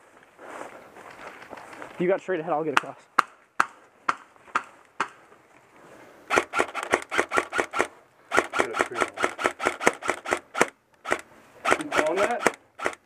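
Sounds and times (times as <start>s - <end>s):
airsoft rifle shots: 6.3s - 13.0s.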